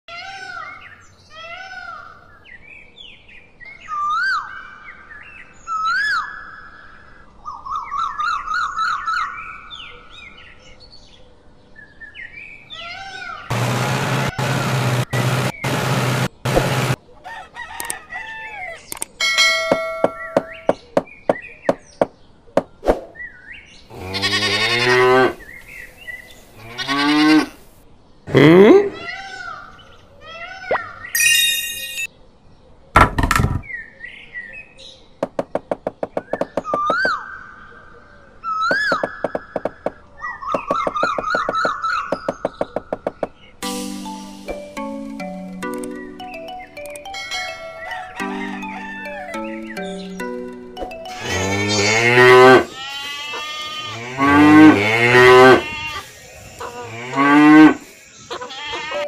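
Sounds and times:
cow mooing: 0:23.9 - 0:25.4, 0:26.6 - 0:27.6, 0:51.1 - 0:56.0, 0:56.6 - 0:57.8
bright chime: 0:31.2 - 0:32.1, 0:43.6 - 0:51.6.

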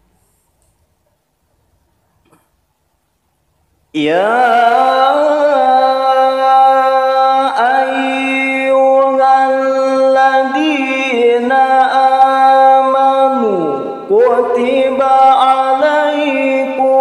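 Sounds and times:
man chanting into a microphone: 0:04.0 - 0:17.0.

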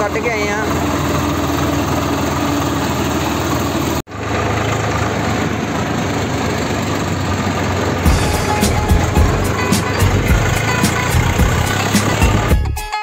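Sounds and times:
tractor diesel engine running: 0:00.0 - 0:12.9
music with a beat: 0:08.1 - 0:13.0.

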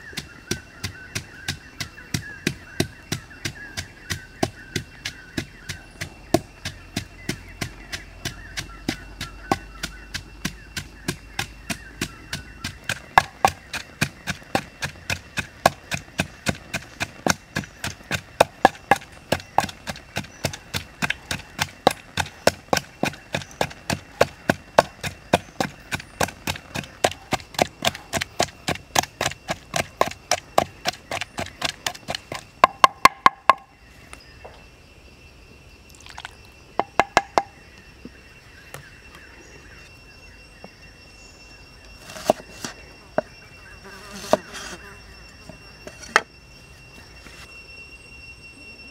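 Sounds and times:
wooden pestle pounding in mortar: 0:00.0 - 0:33.7, 0:36.8 - 0:37.6.

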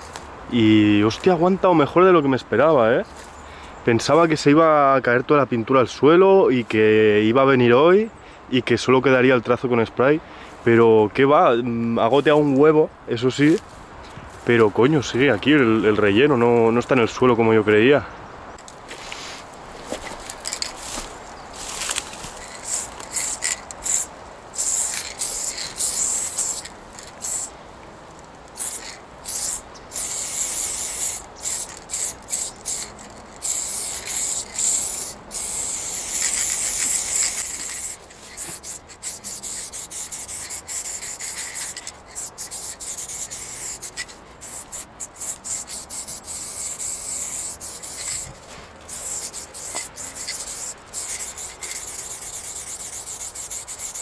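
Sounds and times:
spray paint hissing: 0:20.3 - 0:27.6, 0:28.2 - 0:54.0.

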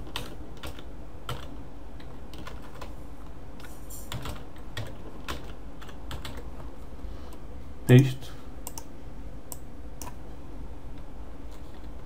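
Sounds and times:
typing on computer keyboard: 0:00.1 - 0:01.5, 0:02.3 - 0:02.9, 0:04.1 - 0:06.4.

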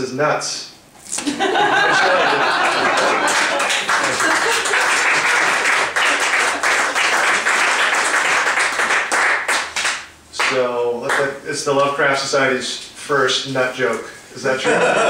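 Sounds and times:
audience laughing: 0:01.2 - 0:06.8, 0:14.6 - 0:15.0
scattered clapping: 0:02.6 - 0:11.3.

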